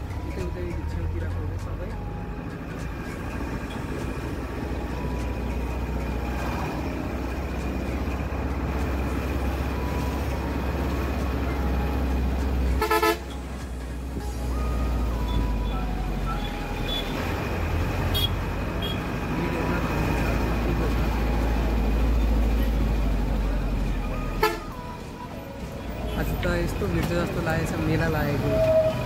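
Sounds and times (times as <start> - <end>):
bus engine rumble: 0.0 - 29.0
road noise: 0.0 - 29.0
vehicle horn blast: 12.8 - 13.4, 18.1 - 19.0, 24.4 - 24.8.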